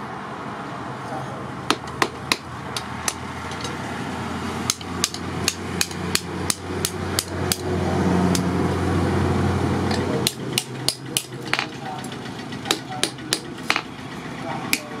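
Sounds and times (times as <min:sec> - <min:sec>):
hammer striking metal on anvil: 0:04.7 - 0:07.7, 0:09.9 - 0:11.8, 0:12.6 - 0:13.9.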